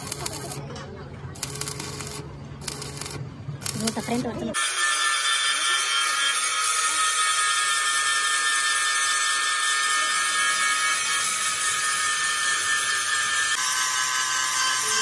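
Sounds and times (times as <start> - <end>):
angle grinder grinding steel: 3.7 - 15.0.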